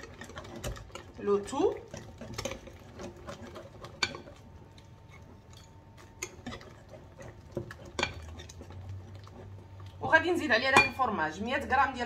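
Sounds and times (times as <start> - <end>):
whisk clicking against glass bowl: 0.0 - 4.4.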